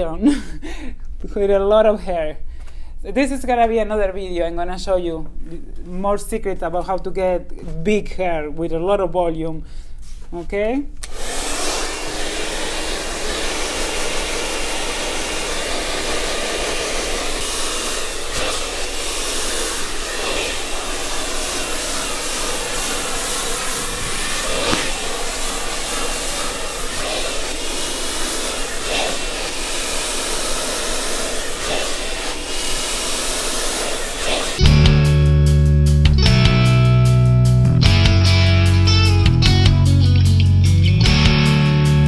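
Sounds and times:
hair dryer running: 0:11.0 - 0:35.0.

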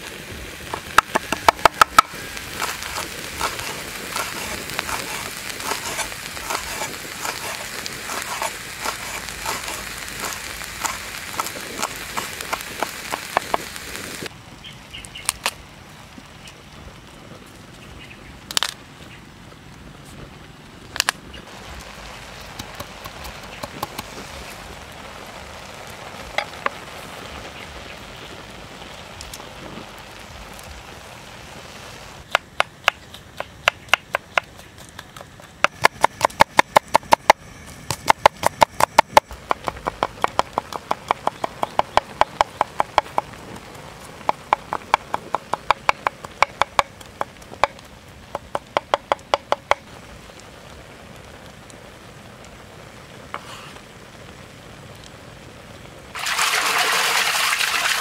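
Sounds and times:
faint hiss: 0:00.0 - 0:33.9, 0:40.9 - 0:58.0.

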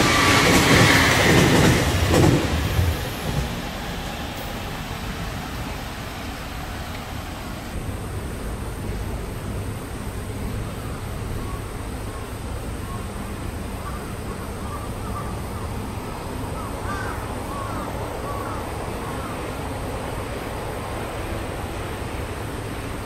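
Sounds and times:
low outdoor rumble: 0:05.4 - 0:23.0.

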